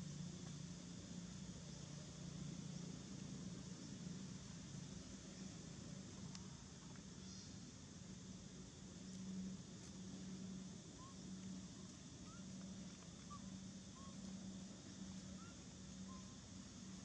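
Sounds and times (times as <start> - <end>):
pulsing low hum: 0.0 - 17.0
steady hiss: 0.0 - 17.0
faint rising chirps: 9.0 - 17.0.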